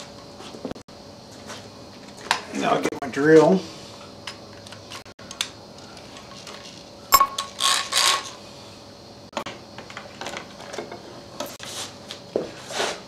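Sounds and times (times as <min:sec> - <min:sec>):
ringing metal clank: 0:07.1 - 0:07.5
metal clinks and knocks: 0:07.1 - 0:07.6.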